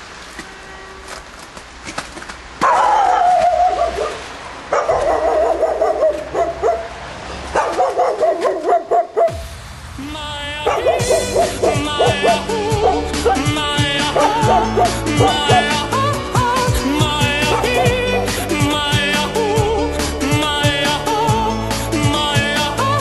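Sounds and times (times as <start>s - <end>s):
dog barking: 2.6s - 9.4s, 10.7s - 15.8s, 17.4s - 18.0s
dog yelping: 2.6s - 9.4s, 10.7s - 15.8s, 17.5s - 18.2s
music with singing voice: 9.3s - 23.0s.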